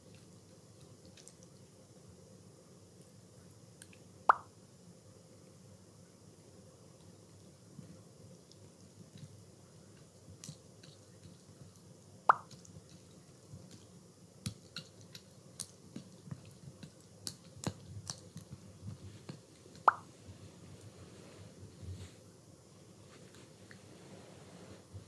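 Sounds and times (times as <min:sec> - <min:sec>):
sharp wet plops: 0:12.3 - 0:12.6, 0:19.8 - 0:20.1.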